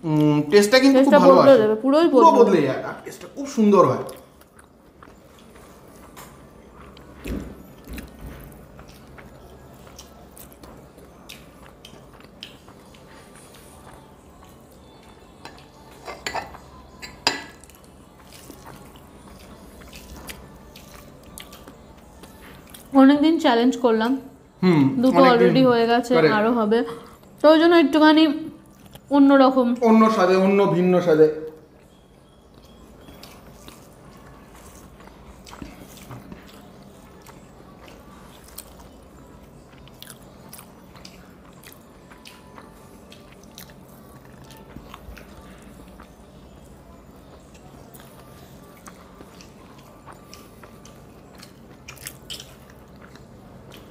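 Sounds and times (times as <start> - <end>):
faint low hum: 0.0 - 53.9
chewing and mouth smacks: 4.0 - 15.9, 17.6 - 22.9, 28.6 - 29.1, 31.6 - 53.9
tableware clinking: 15.4 - 17.6.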